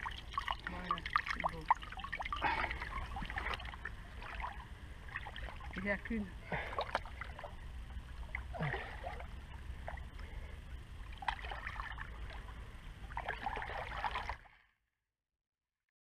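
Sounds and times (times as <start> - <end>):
steady low rumble: 0.0 - 14.4
shallow water splashing: 0.0 - 14.6.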